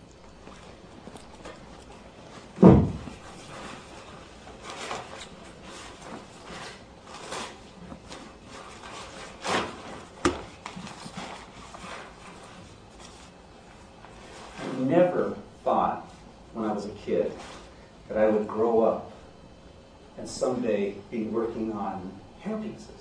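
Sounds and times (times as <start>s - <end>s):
rubbing and rustling handling: 0.0s - 15.0s
heavy low thump: 2.6s - 3.2s.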